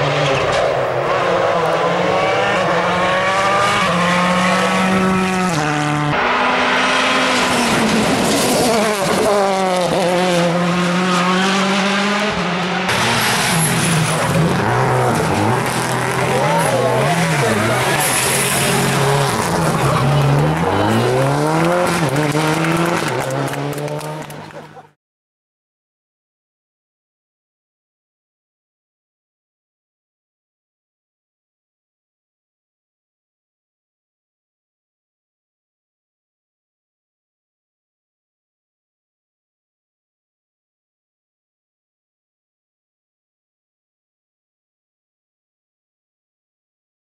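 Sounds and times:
rally car engines revving: 0:00.0 - 0:25.0.

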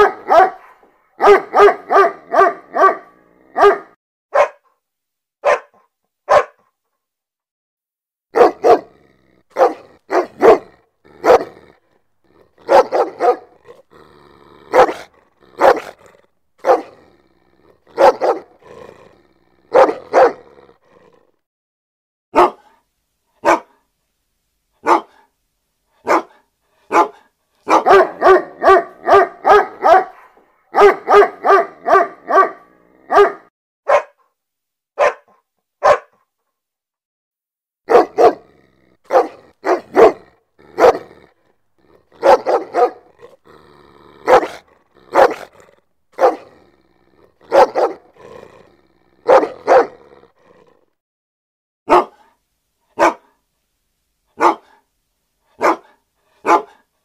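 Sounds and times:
dog barking: 0:00.0 - 0:04.8, 0:05.4 - 0:06.7, 0:08.3 - 0:11.8, 0:12.6 - 0:13.8, 0:14.7 - 0:17.0, 0:17.9 - 0:18.8, 0:19.7 - 0:20.5, 0:22.3 - 0:22.8, 0:23.4 - 0:23.8, 0:24.8 - 0:25.3, 0:26.0 - 0:34.3, 0:35.0 - 0:36.3, 0:37.9 - 0:41.3, 0:42.1 - 0:43.4, 0:44.2 - 0:46.6, 0:47.2 - 0:48.3, 0:49.1 - 0:50.2, 0:51.9 - 0:52.4, 0:53.0 - 0:53.4, 0:54.4 - 0:54.9, 0:55.5 - 0:56.9.

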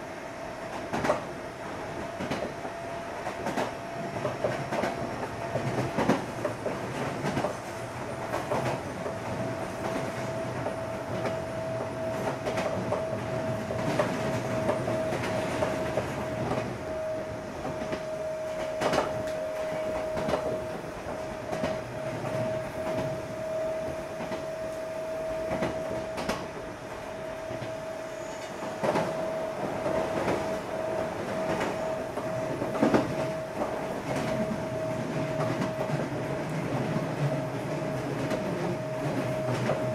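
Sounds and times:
electric train whine: 0:00.0 - 0:39.9
train rumble: 0:00.0 - 0:39.9
train wheels clicking over rail joints: 0:00.7 - 0:01.3, 0:02.2 - 0:16.7, 0:17.6 - 0:23.2.

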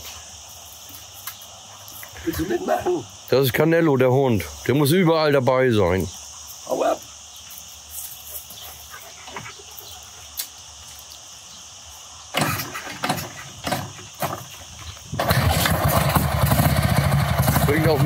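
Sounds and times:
motorcycle engine bursts: 0:15.2 - 0:18.0
motorcycle engine running: 0:15.2 - 0:18.0.

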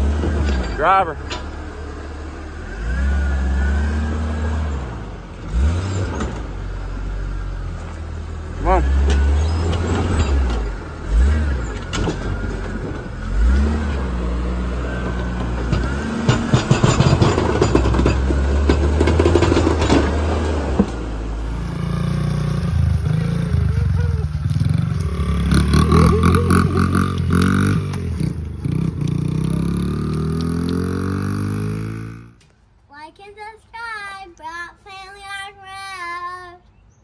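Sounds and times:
off-road vehicle engine running: 0:00.0 - 0:32.4
small dirt bike engine: 0:07.9 - 0:32.4.

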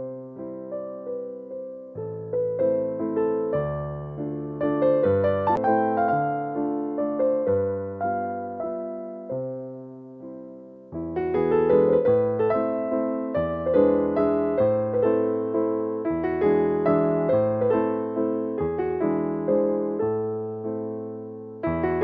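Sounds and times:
slow gentle keyboard music: 0:00.0 - 0:22.0.

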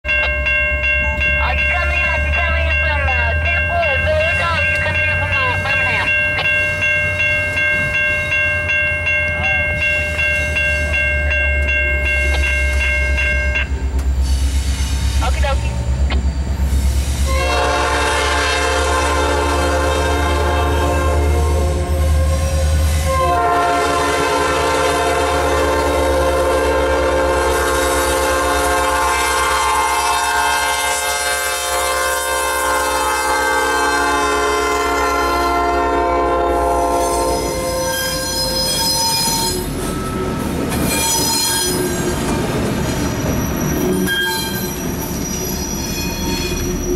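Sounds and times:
locomotive air horn blasts: 0:17.3 - 0:39.7.

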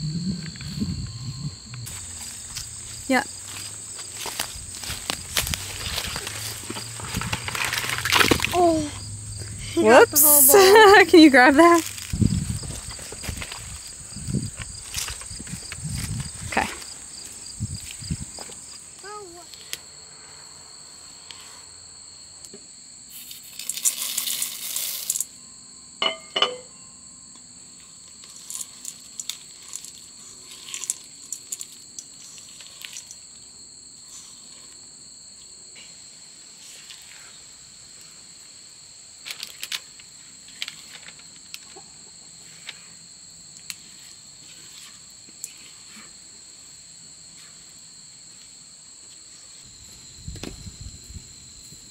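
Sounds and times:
high-pitched insect chorus: 0:00.0 - 0:51.9.

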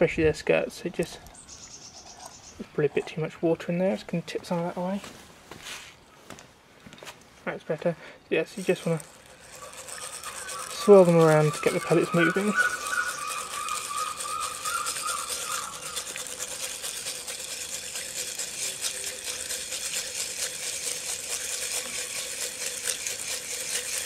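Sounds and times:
pellets rattling in glass jar: 0:08.5 - 0:24.0.

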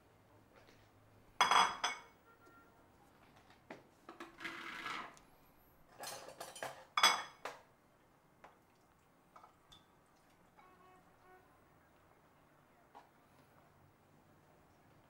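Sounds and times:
ceramic bowl clinking on stone: 0:01.4 - 0:02.2.

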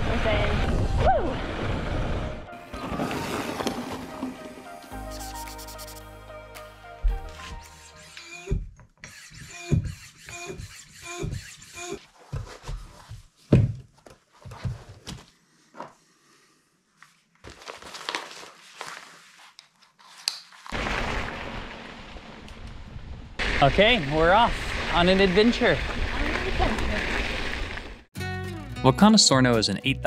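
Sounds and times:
floor pump strokes squeaking: 0:07.3 - 0:13.3.

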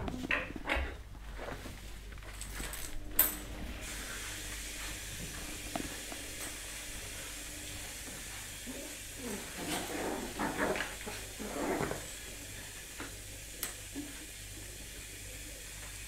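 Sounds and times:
steady hiss: 0:03.1 - 0:16.0.

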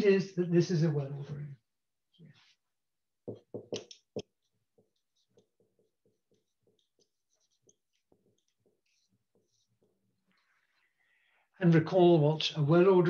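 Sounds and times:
pen scratching while writing: 0:03.7 - 0:10.3.

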